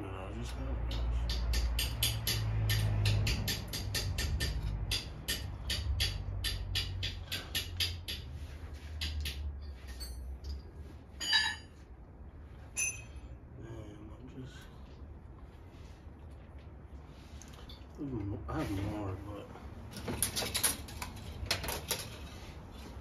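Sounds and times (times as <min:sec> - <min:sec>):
metal engine parts clinking: 0:09.0 - 0:11.8, 0:12.7 - 0:13.2, 0:19.9 - 0:22.3.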